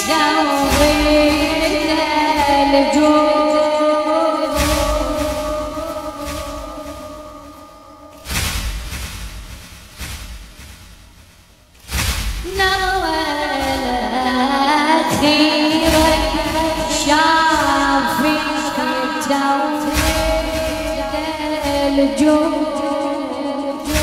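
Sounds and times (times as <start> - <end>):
person singing mournful lament: 0.0 - 7.4, 12.5 - 24.0
low deep beats: 0.0 - 23.1.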